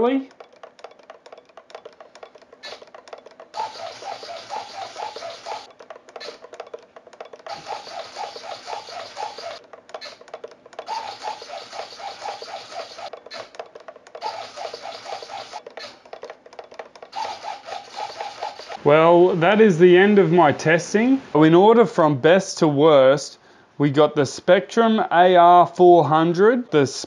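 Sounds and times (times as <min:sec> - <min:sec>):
servos whirring and buzzing: 0:03.5 - 0:06.6, 0:07.4 - 0:13.6, 0:14.2 - 0:16.1, 0:17.1 - 0:18.8.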